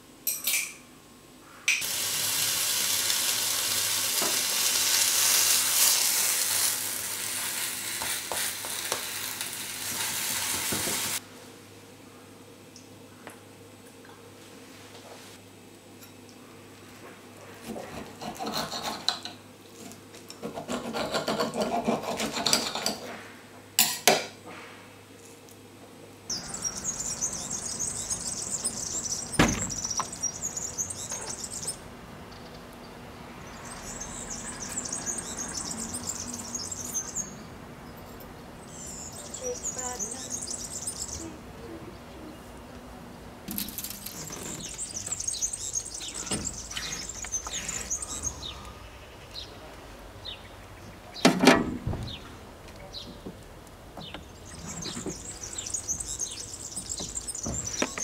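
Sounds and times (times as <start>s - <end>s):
cutlery clinks: 0.3s - 0.8s
knife and fork scraping plate: 17.8s - 19.4s, 20.7s - 23.1s
birds chirping: 26.3s - 51.4s, 52.0s - 53.4s, 54.0s - 58.0s
sharp knock: 29.4s - 29.9s.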